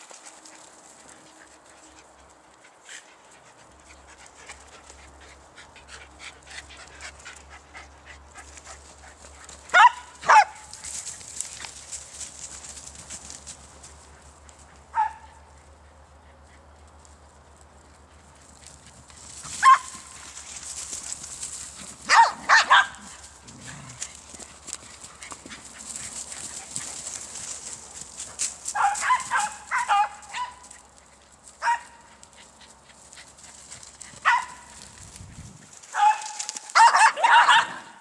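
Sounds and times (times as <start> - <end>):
dogs barking: 9.7 - 10.8, 14.8 - 15.5, 19.5 - 20.2, 21.9 - 23.4, 28.7 - 30.8, 31.6 - 32.2, 34.1 - 34.8, 35.9 - 38.0.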